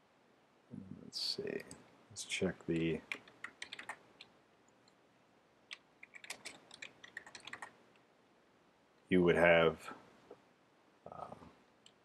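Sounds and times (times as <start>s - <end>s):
faint keyboard typing: 1.4s - 1.9s, 2.7s - 5.0s, 5.7s - 8.1s.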